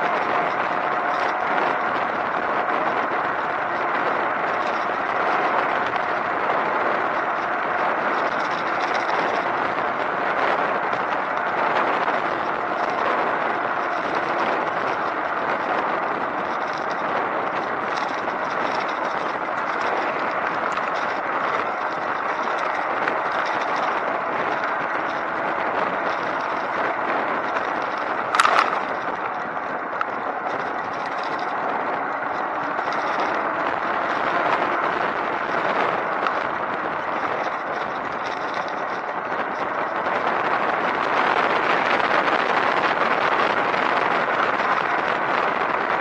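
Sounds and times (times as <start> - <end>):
rushing wind and road noise: 0.0 - 46.0.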